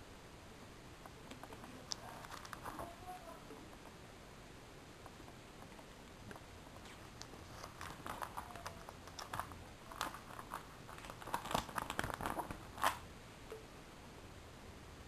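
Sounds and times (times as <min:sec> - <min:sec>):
plastic sleeves crinkling: 0:01.8 - 0:03.1, 0:06.8 - 0:13.0.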